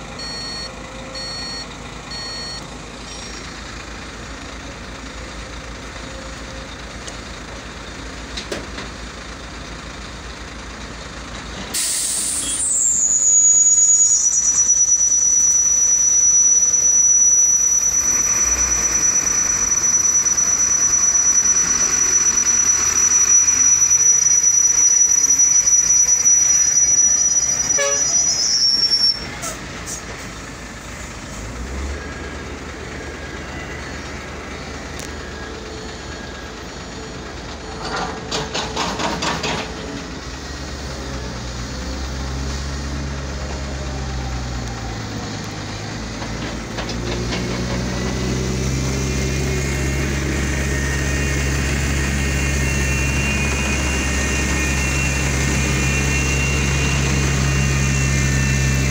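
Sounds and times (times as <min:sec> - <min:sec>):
excavator diesel rumble: 0:00.0 - 0:58.9
heavy machinery working: 0:11.3 - 0:58.9
high-pitched whine: 0:11.8 - 0:38.1, 0:47.7 - 0:58.9
clanks: 0:37.1 - 0:40.3, 0:46.0 - 0:48.4.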